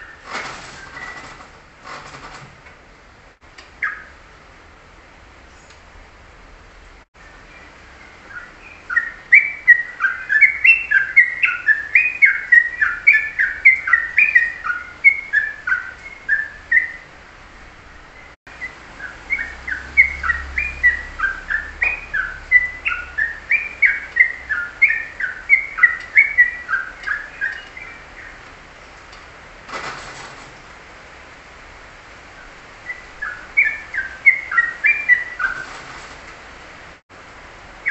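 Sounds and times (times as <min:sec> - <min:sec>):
songbird singing whistled notes: 0:00.0 - 0:01.4, 0:03.8 - 0:04.2, 0:07.2 - 0:17.2, 0:18.2 - 0:28.4, 0:32.4 - 0:35.8.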